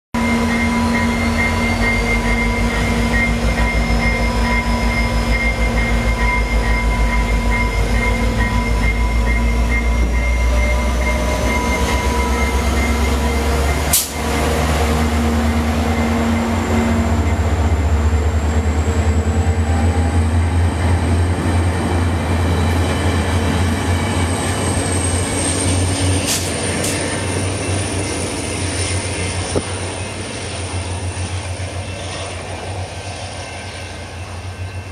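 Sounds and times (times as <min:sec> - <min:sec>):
thin high tone: 0:00.2 - 0:18.7
diesel train rumble and drone: 0:00.2 - 0:34.9.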